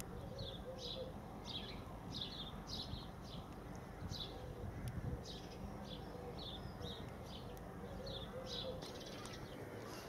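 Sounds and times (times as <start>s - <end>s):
small bird chirping: 0.0s - 10.0s.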